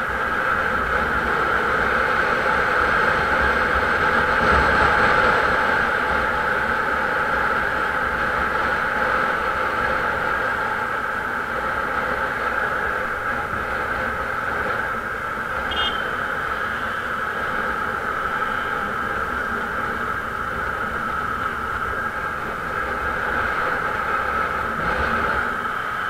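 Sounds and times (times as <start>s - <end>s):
wind and road noise: 0.0s - 26.0s
brief high beep: 15.7s - 16.1s.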